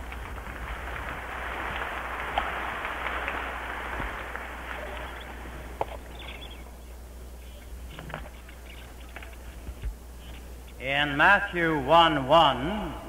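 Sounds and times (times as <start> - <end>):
audience applauding: 0.0 - 6.5
low hum: 0.0 - 13.0.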